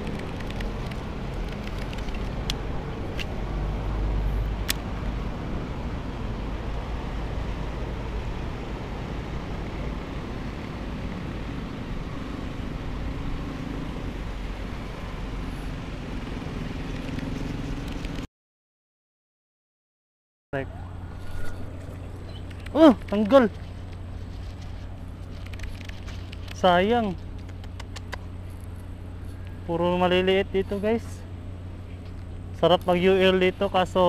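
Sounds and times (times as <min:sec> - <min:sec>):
sharp clicks: 0:00.0 - 0:03.4, 0:22.3 - 0:24.0, 0:27.3 - 0:28.3
road traffic rumble: 0:00.0 - 0:18.3, 0:20.6 - 0:34.0.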